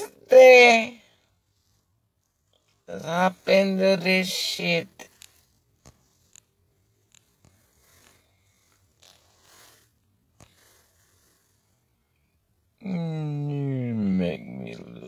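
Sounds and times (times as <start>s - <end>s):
soft rustles: 1.0s - 12.2s.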